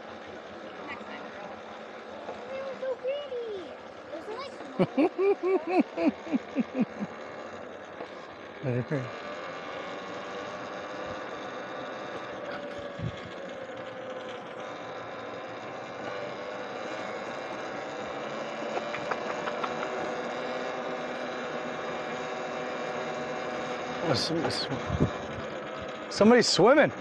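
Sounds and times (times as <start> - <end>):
electric motor whine: 0.0 - 27.0.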